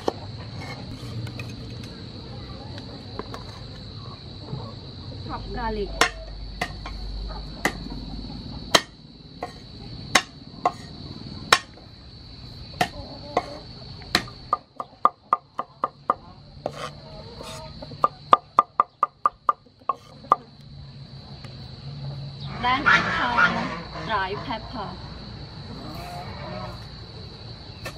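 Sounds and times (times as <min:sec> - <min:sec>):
knife chopping on wooden board: 0:08.7 - 0:09.6.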